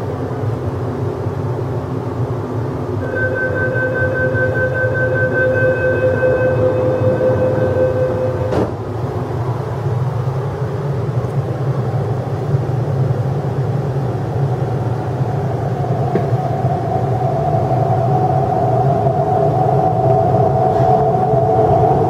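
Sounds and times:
train humming: 0.0 - 22.0
traction motor whine: 3.0 - 8.6
door warning tone: 3.0 - 8.7
train doors thudding shut: 7.3 - 8.9, 16.1 - 16.4.

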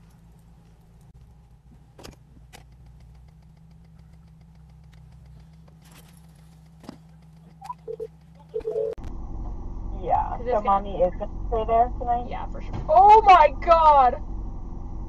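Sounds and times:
car engine idling: 0.0 - 15.0
faint clicks: 2.4 - 8.6.

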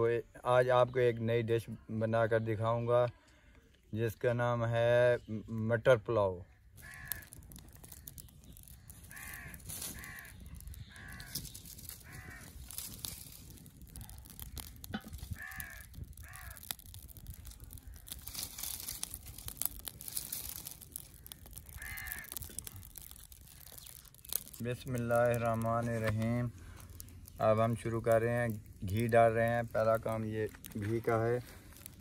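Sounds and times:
wood fire crackling: 6.6 - 32.0
crow cawing: 6.8 - 7.4, 9.0 - 12.6, 14.3 - 16.8, 21.1 - 22.8.

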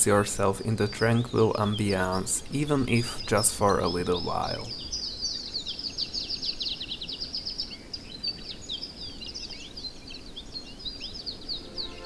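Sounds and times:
birds chirping and whistling: 0.0 - 12.0
songbird trill: 0.0 - 12.0.

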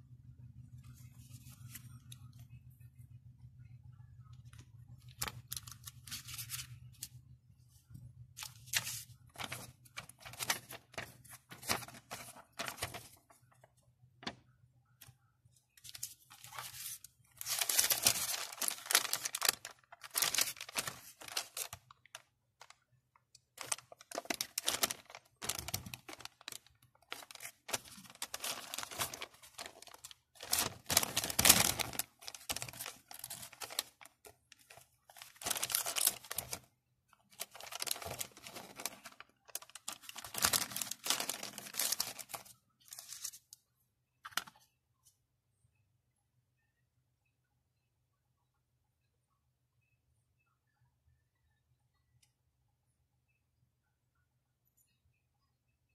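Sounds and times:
paper rustling and crinkling: 4.5 - 7.2, 8.4 - 14.4, 15.8 - 22.8, 23.5 - 43.6.

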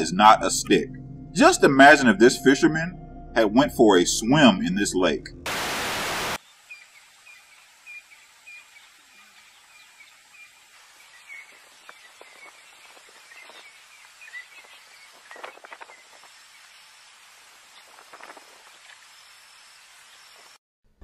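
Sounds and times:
birds chirping: 6.0 - 16.9.

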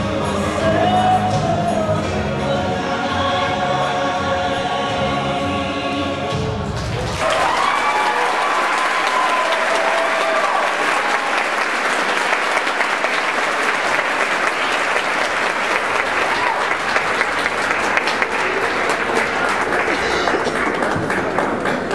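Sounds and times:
audience applauding: 6.8 - 21.9.

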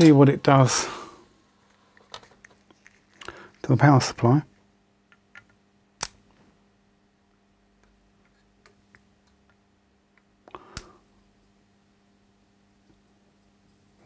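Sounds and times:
faint high whine: 0.0 - 2.1
low steady hum: 0.0 - 14.0.

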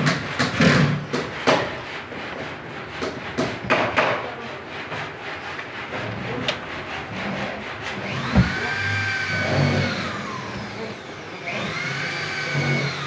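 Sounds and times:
motor whine: 8.0 - 13.0.

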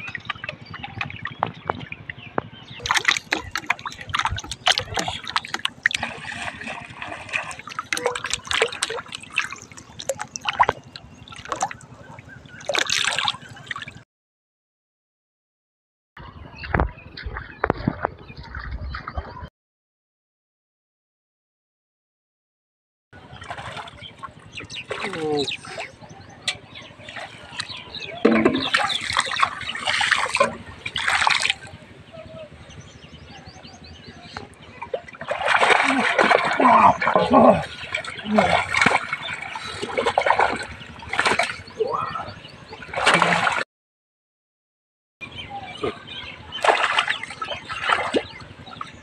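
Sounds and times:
muddy water splashing: 0.0 - 14.0, 23.2 - 43.6, 45.3 - 49.0.

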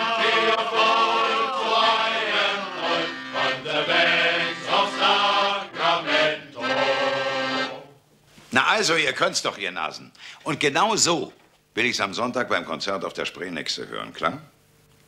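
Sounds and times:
men's choir singing: 0.0 - 7.9
accordion: 0.0 - 8.0.

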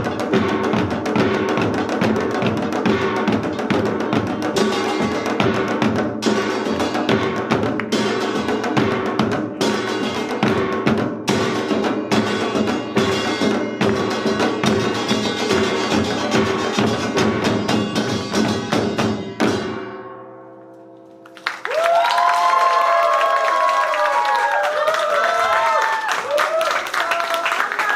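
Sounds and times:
percussion ensemble drums and gongs: 0.0 - 20.0
audience cheering and applause: 21.2 - 27.9.

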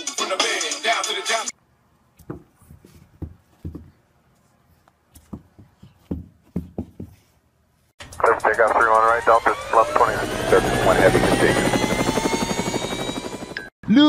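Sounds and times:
rap music: 0.0 - 1.5, 8.0 - 10.0
soft irregular thumps and taps: 2.2 - 7.4.

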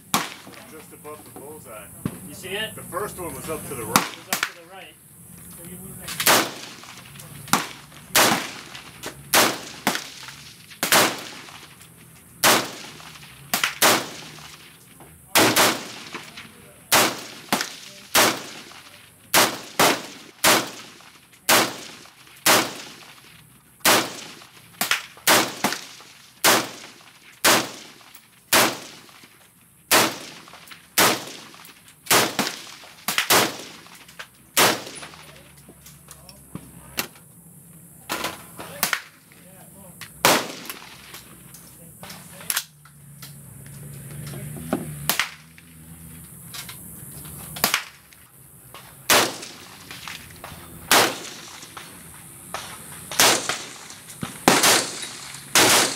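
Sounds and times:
rifle gunshots: 0.0 - 0.6, 3.8 - 4.6, 6.1 - 11.7, 12.4 - 14.7, 15.3 - 23.2, 23.8 - 29.3, 29.9 - 35.3, 40.2 - 41.1, 49.0 - 50.1, 50.8 - 51.9, 52.5 - 55.9.

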